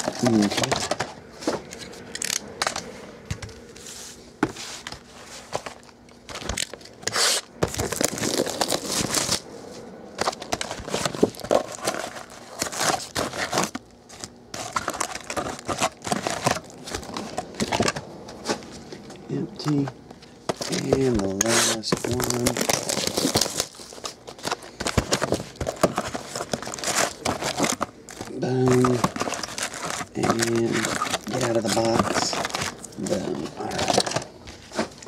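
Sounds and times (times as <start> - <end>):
foil wrappers crinkling: 0.0 - 1.6, 4.7 - 18.8, 19.5 - 35.0
cardboard scraping and tapping: 10.2 - 18.8, 20.5 - 23.4, 24.0 - 35.0.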